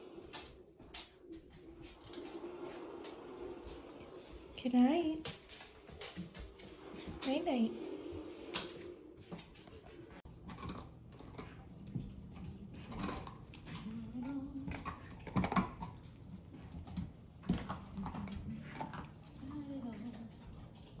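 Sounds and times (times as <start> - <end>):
dogs gnawing on chews: 10.2 - 21.0.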